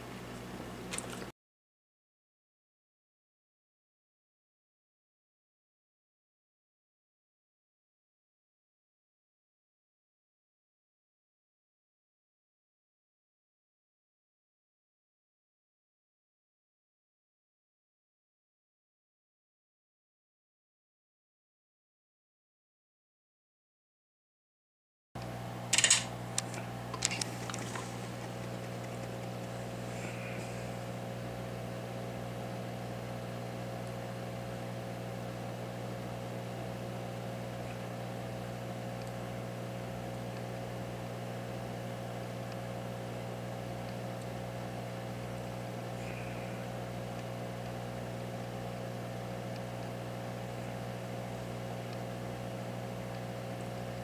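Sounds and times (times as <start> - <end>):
machine fan humming: 0.0 - 1.3, 25.2 - 54.0.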